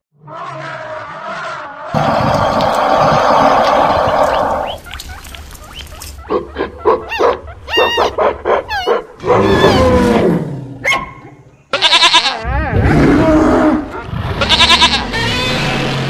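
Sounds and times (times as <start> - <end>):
animal roaring: 0.2 - 4.8, 9.2 - 10.8, 12.5 - 14.6
high pitched animal cries: 2.0 - 10.2, 14.4 - 15.8.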